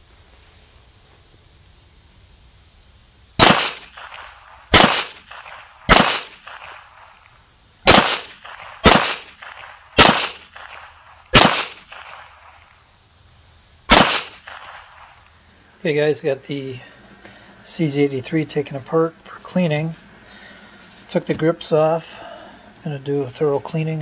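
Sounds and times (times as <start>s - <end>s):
pistol shots echoing: 3.4s - 7.2s, 7.8s - 12.7s, 13.9s - 15.2s.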